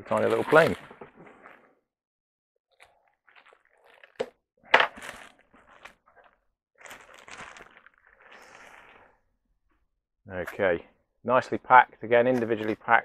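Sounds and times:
plastic bags rustling: 0.0s - 1.1s, 3.3s - 9.0s.

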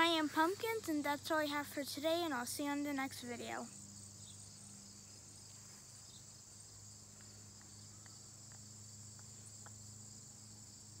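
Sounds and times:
insects chirping: 0.0s - 11.0s
faint ticks: 7.2s - 9.8s.

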